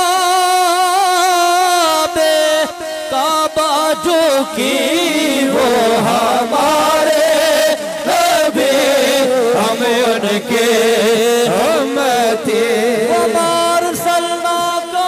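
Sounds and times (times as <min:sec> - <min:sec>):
person chanting: 0:00.0 - 0:15.0.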